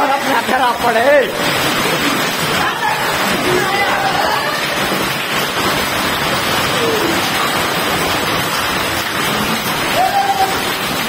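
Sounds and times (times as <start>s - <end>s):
heavy rain and hail on concrete: 0.0s - 11.0s.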